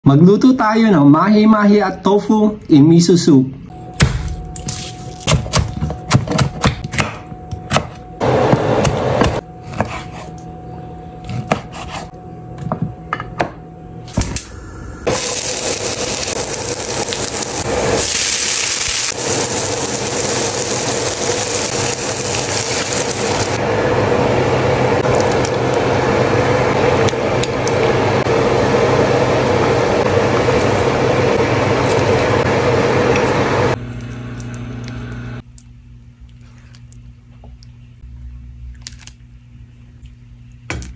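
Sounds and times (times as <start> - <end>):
knife chopping on wooden board: 5.3 - 10.3, 11.3 - 12.1
vegetables sizzling in oil: 15.1 - 23.6
soup cooking in pan: 15.1 - 35.4.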